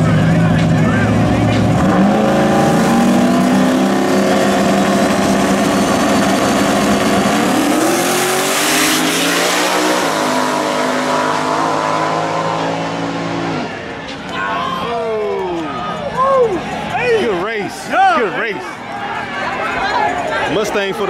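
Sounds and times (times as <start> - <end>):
car engine revving high: 0.0 - 13.9.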